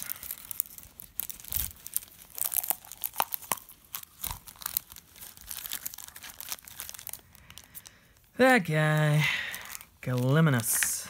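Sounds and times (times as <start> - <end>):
shrink wrap crinkling and tearing: 0.0 - 11.0.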